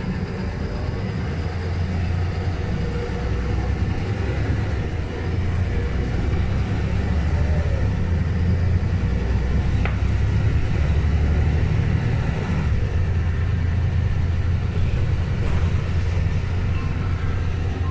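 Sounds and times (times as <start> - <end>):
bus engine rumble: 0.0 - 17.9.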